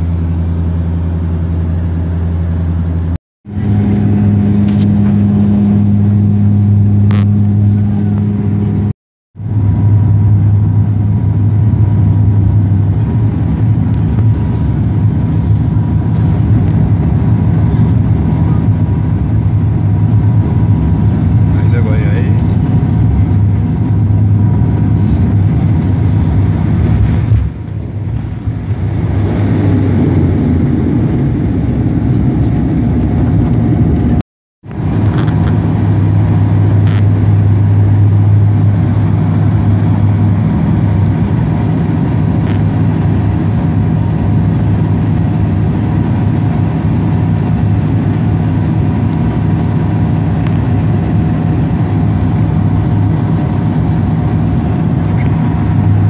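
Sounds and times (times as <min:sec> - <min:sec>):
propeller aircraft cabin drone: 0:00.0 - 0:56.0.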